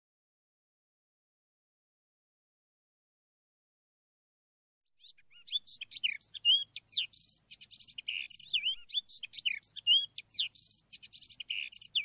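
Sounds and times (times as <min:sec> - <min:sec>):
birds singing and chirping: 0:05.0 - 0:12.0.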